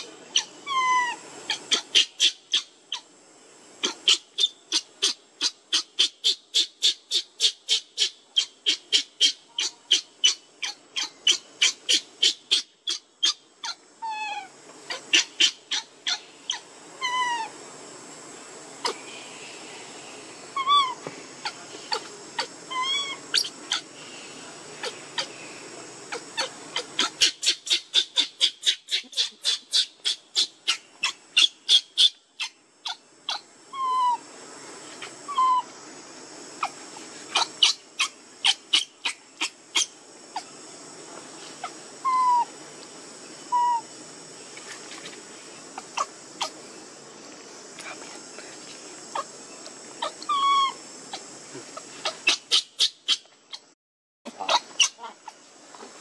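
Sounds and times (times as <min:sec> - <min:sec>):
baby monkey crying: 0:00.0 - 0:03.0, 0:03.8 - 0:17.5, 0:20.6 - 0:23.9, 0:26.1 - 0:34.2, 0:35.0 - 0:35.7, 0:36.6 - 0:40.5, 0:41.6 - 0:42.5, 0:43.5 - 0:43.8, 0:45.8 - 0:46.6, 0:50.0 - 0:51.2, 0:52.0 - 0:53.6, 0:54.3 - 0:55.4.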